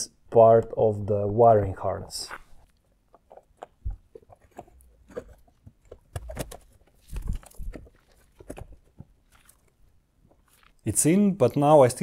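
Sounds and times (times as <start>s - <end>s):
plastic clicking and scraping: 2.4s - 9.7s.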